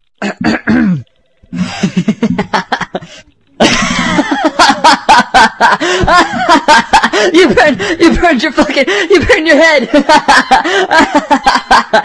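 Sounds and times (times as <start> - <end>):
cartoon character laughing: 1.8 - 7.8, 9.2 - 12.0.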